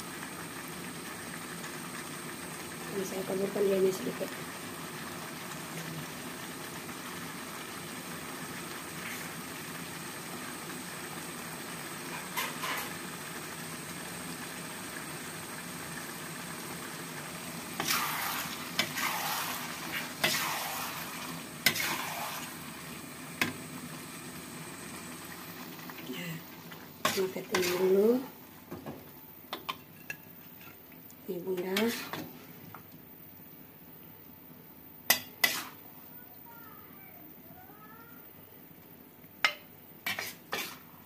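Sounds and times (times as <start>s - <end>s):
food sizzling in a wok: 0.0s - 32.7s, 35.1s - 36.9s, 39.4s - 41.0s
metal spatula scraping wok: 17.8s - 21.0s, 21.6s - 22.4s, 27.0s - 28.3s, 31.6s - 32.4s, 35.1s - 35.8s, 40.0s - 40.9s.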